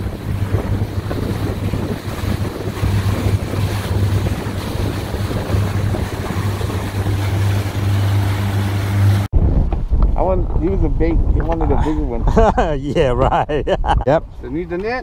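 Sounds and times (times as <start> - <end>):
outboard motor drone: 0.0 - 9.3
rush of boat wake: 0.0 - 9.3
wind buffeting microphone: 0.0 - 15.0.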